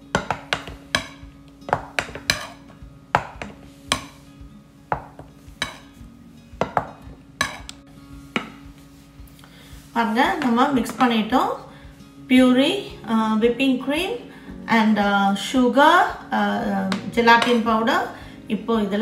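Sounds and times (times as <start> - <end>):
spatula scraping ceramic bowl: 0.2 - 2.7, 5.6 - 6.0.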